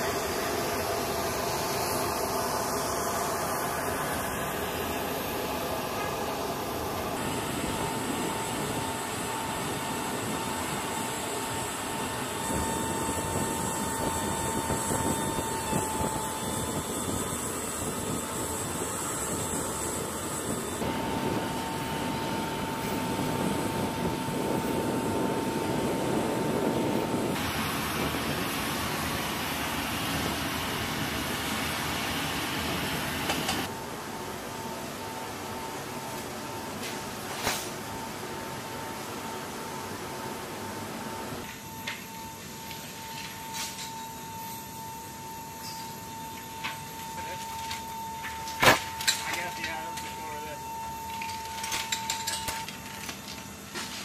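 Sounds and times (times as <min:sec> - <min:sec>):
aircraft and ground equipment noise: 0:00.0 - 0:54.0
high whine: 0:00.0 - 0:54.0.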